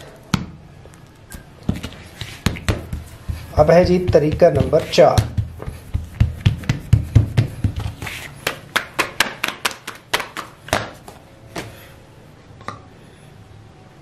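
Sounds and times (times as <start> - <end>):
hands patting dough: 1.6 - 11.2.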